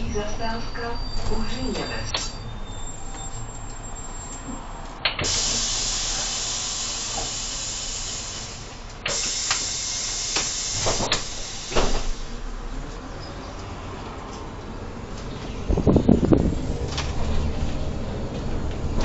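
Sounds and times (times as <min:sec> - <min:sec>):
compressed air hissing: 0:05.2 - 0:12.4.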